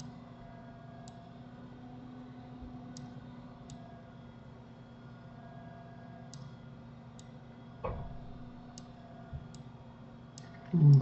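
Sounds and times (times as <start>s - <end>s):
faint steady hum: 0.0s - 11.0s
dull thump: 7.8s - 8.4s.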